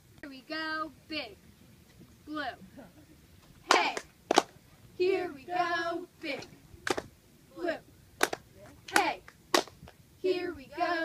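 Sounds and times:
cheerleaders chanting: 0:03.6 - 0:04.0, 0:05.0 - 0:06.5, 0:07.5 - 0:07.8, 0:08.8 - 0:09.2, 0:10.2 - 0:11.0
sharp hand claps: 0:03.7 - 0:04.5, 0:08.2 - 0:10.0.

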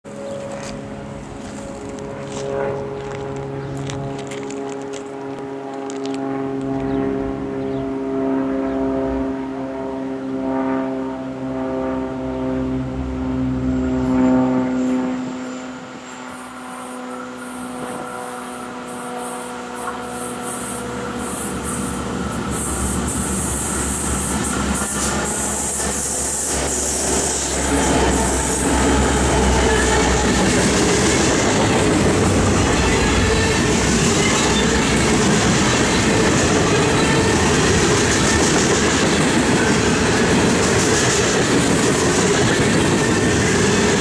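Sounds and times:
train wheels rumbling on rails: 0:00.2 - 0:07.5, 0:14.8 - 0:44.0
train air horn blasts: 0:03.8 - 0:38.7.

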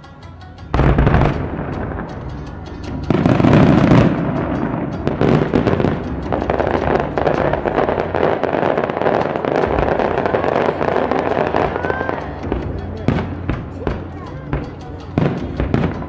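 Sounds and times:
firework boom: 0:00.7 - 0:16.0
fireworks crackling and popping: 0:00.7 - 0:16.0.

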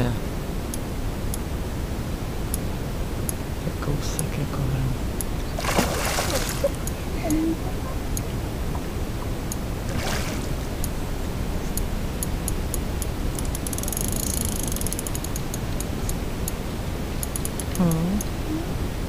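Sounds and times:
wind and water rumble: 0:00.0 - 0:19.0
fish splash: 0:05.5 - 0:06.8, 0:09.9 - 0:10.6
fishing reel drag clicking: 0:13.4 - 0:15.4
fishing reel whirr: 0:13.4 - 0:15.4.

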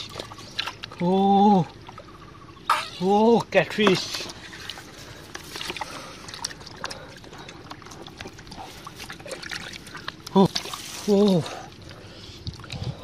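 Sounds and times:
small wet splashes: 0:00.0 - 0:13.0
hands squelching in wet mud: 0:02.8 - 0:13.0.

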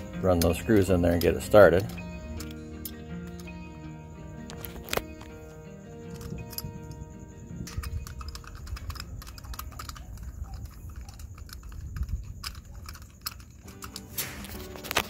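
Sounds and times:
metal doorknob clicks and rattles: 0:06.0 - 0:07.0, 0:07.6 - 0:15.0.

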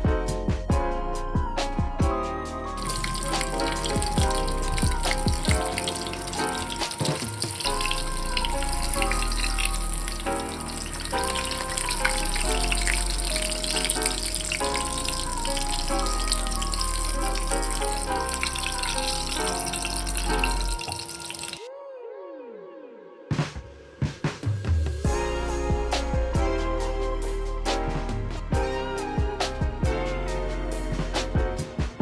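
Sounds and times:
background music: 0:00.0 - 0:32.0
oil sizzling around frying cutlet: 0:02.8 - 0:21.7.

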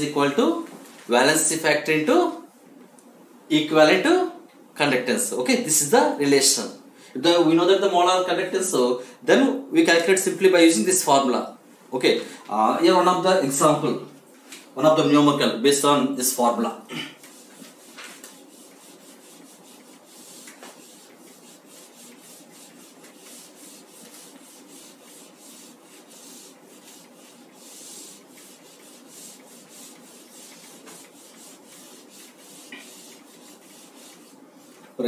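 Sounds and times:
eraser rubbing on whiteboard: 0:17.2 - 0:35.0.

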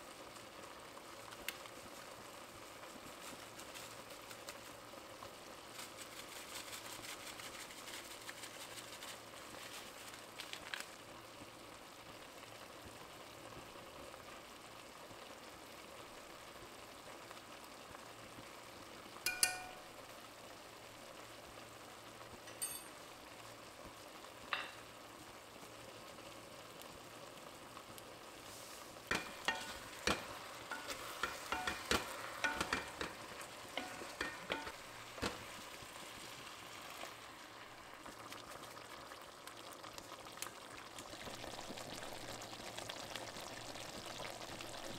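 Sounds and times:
chicken sizzling in a pot: 0:00.0 - 0:44.9
ringing clinks: 0:19.3 - 0:19.8, 0:22.5 - 0:23.0
wooden spatula knocking on pot: 0:29.1 - 0:33.2, 0:33.8 - 0:35.5.

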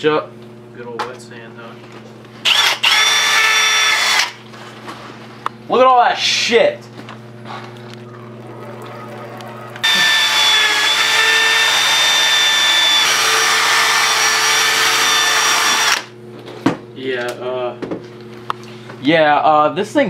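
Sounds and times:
drill sanding with high whine: 0:02.4 - 0:04.4, 0:09.8 - 0:16.1
low steady hum: 0:04.4 - 0:10.6.

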